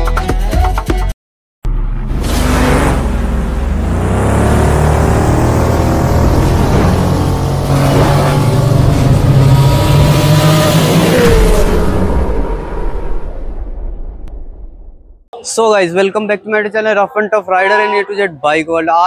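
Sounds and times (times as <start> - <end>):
engine revving: 1.7 - 13.8.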